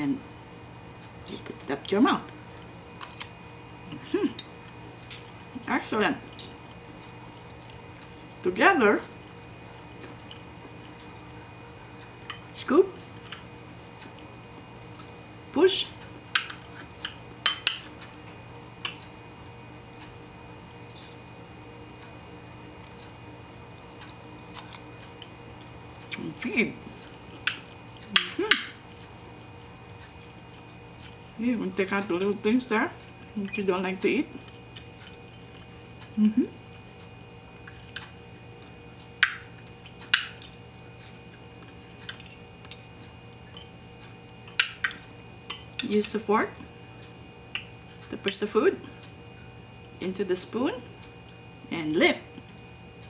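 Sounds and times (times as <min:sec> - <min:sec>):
spoon and fork clinking on a bowl: 0:16.4 - 0:17.9
cutlery clinking against bowl: 0:16.4 - 0:18.0, 0:20.9 - 0:21.2, 0:44.4 - 0:45.9.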